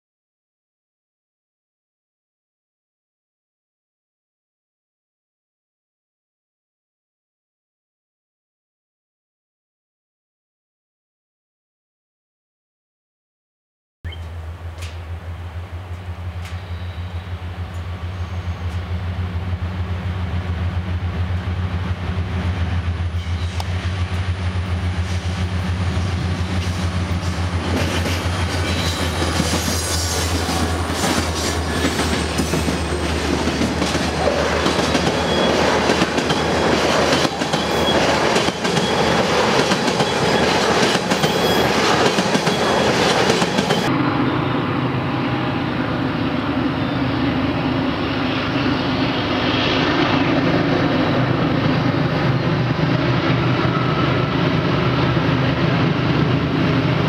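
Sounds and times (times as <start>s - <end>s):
diesel locomotive drone: 14.1s - 57.0s
train wheels clicking over rail joints: 14.2s - 19.0s, 23.2s - 43.9s.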